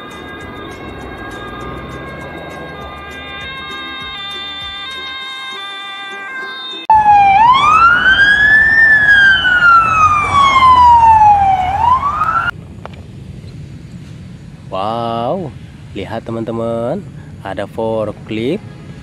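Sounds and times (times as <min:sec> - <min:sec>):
background music: 0:00.0 - 0:07.9
police siren wailing: 0:00.0 - 0:12.5.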